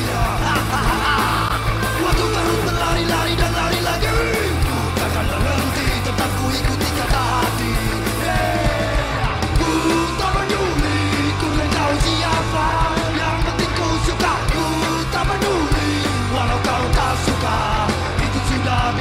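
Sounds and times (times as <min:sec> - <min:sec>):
person yelling vocals: 0:00.0 - 0:02.8
punk rock song: 0:00.0 - 0:19.0.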